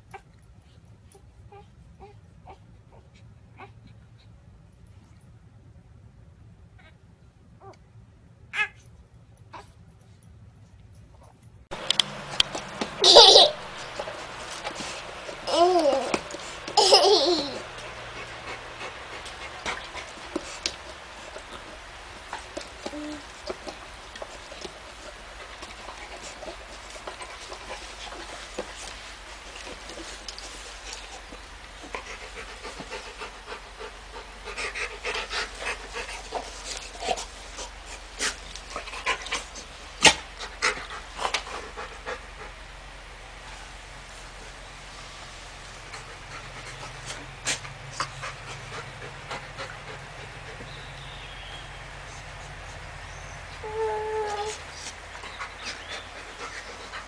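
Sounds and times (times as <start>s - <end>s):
dog panting: 13.6s - 42.8s, 45.6s - 53.2s, 54.3s - 57.0s.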